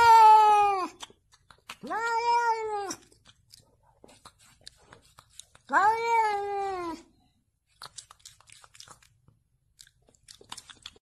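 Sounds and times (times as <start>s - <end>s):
cat meowing: 1.8s - 3.1s, 5.6s - 7.1s.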